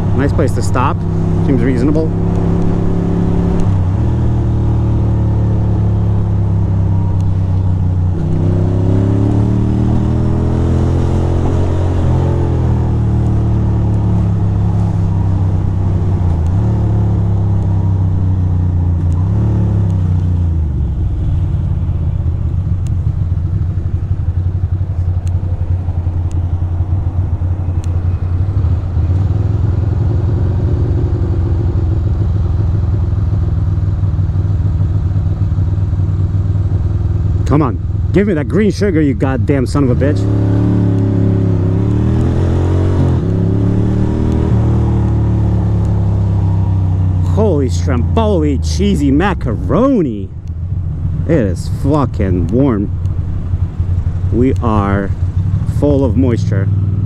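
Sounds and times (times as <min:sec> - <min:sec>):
motorcycle engine revving: 0:00.0 - 0:57.0
lumpy motorcycle idle: 0:20.5 - 0:29.2, 0:31.5 - 0:39.6.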